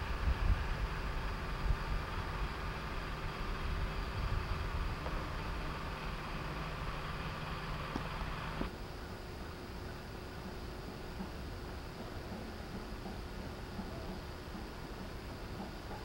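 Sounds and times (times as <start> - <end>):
low rumbling: 0.0 - 8.7
outdoor rumble and hiss: 0.0 - 16.0.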